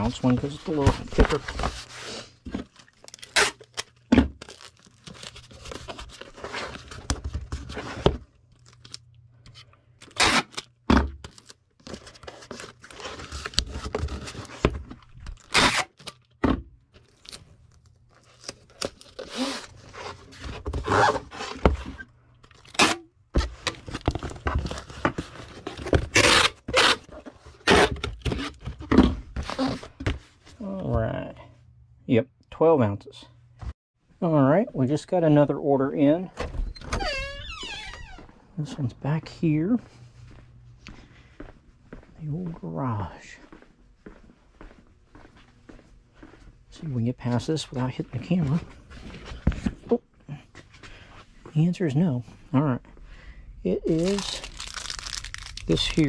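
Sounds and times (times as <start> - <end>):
packaging rustling and tearing: 2.6 - 7.9, 10.0 - 16.3, 17.0 - 23.0, 53.8 - 56.0.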